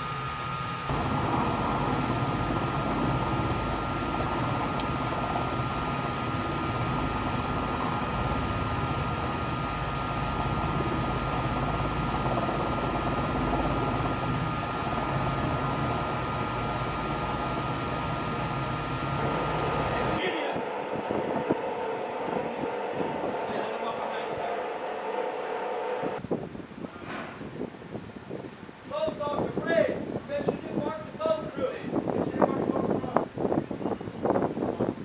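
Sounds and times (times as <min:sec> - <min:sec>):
helicopter rotor and turbines: 0:00.0 - 0:26.2
high whine: 0:00.0 - 0:26.2.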